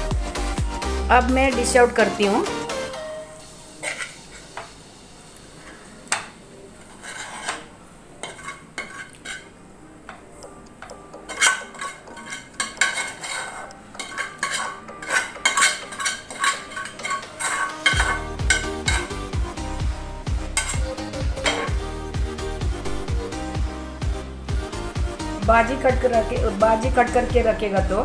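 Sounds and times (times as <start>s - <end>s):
metal spatula scraping a pan: 3.7s - 4.7s, 5.6s - 9.6s, 11.2s - 19.3s, 20.4s - 21.9s.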